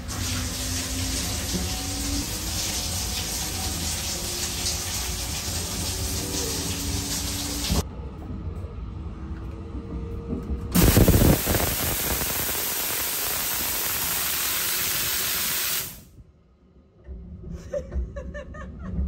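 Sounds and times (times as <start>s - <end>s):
shower spray hissing: 10.8s - 16.1s.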